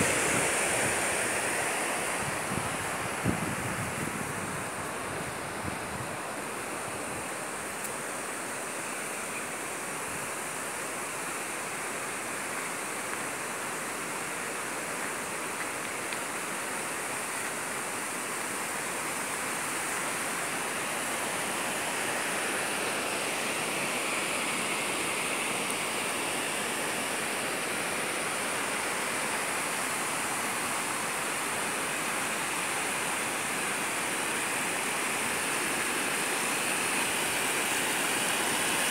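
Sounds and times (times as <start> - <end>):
river water rushing over rocks: 0.0 - 38.9.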